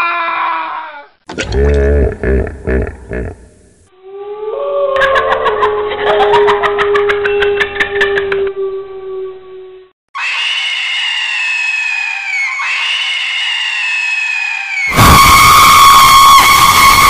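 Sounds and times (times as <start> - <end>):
eerie falling wails: 4.0 - 17.0
harsh jump-scare scream: 10.2 - 17.0.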